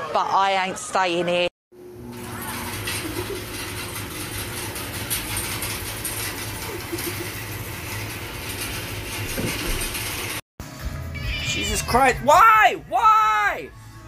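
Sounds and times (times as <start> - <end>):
machine humming and rattling: 1.8 - 10.4.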